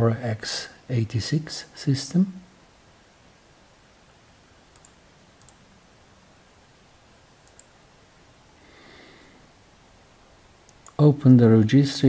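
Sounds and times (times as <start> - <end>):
low steady hiss: 0.0 - 12.0
computer mouse clicks: 4.7 - 5.6, 7.4 - 7.8, 10.6 - 11.0.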